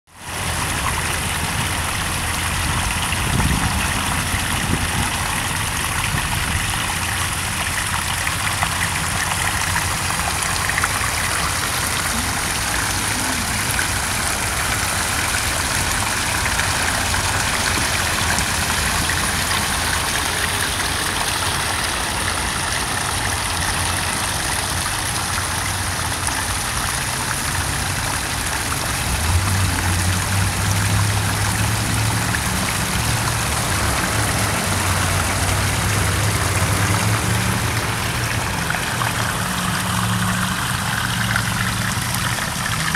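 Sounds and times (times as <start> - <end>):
waterfall splashing into pool: 0.1 - 42.9
low engine-like hum: 0.2 - 42.9.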